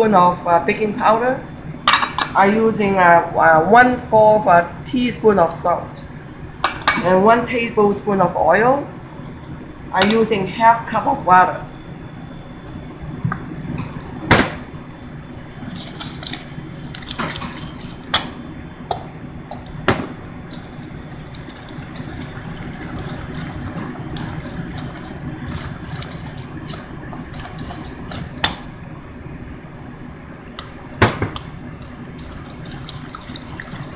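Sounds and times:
spoon stirring thick batter: 15.5 - 18.2, 19.5 - 28.8, 31.3 - 33.9
water pouring into bowl: 20.5 - 28.4, 31.8 - 33.9.

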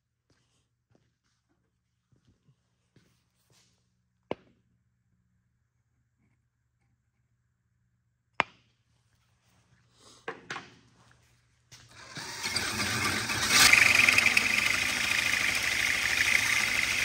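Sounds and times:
electric drill cutting steel: 11.9 - 17.0
high-pitched cutting whine: 12.0 - 17.0.

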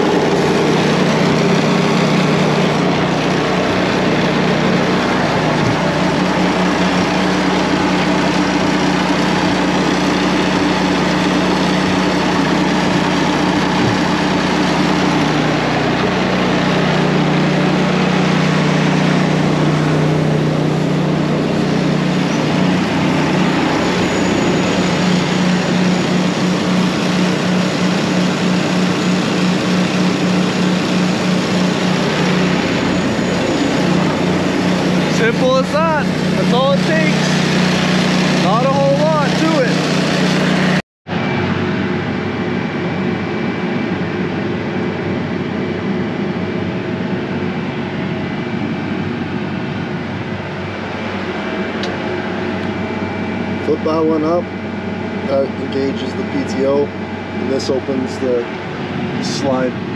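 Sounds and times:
belt auger engine running: 0.0 - 40.8.

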